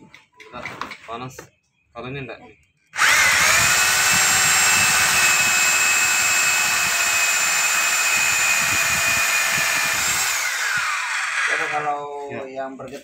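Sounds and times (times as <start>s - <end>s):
rotary hammer drill into brick: 3.0s - 11.9s.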